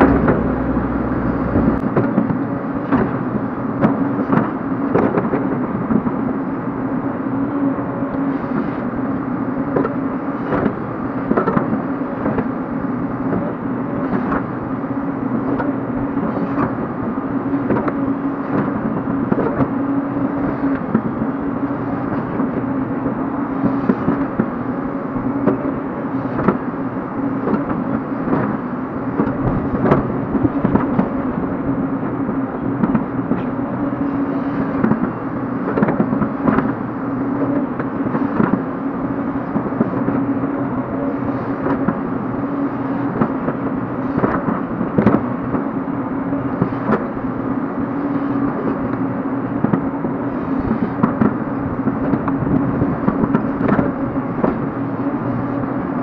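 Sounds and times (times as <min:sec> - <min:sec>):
excavator diesel engine running: 0:00.0 - 0:04.2.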